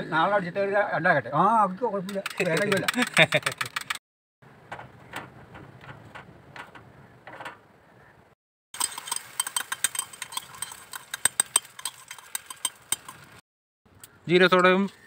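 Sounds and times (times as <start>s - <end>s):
egg crackling in hot pan: 8.8s - 13.4s
light metal clinks: 8.8s - 13.4s.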